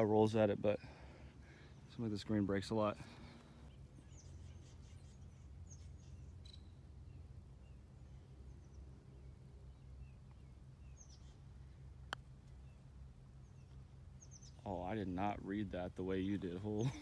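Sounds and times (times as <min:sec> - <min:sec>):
low steady rumble: 0:00.0 - 0:17.0
faint bird chirps: 0:03.6 - 0:15.0.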